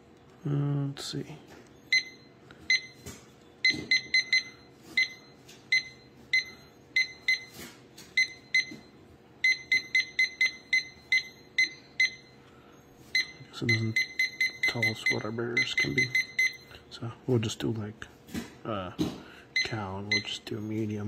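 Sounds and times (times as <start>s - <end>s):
short high key-press beeps: 3.6s - 7.5s, 8.2s - 12.3s, 13.2s - 16.7s.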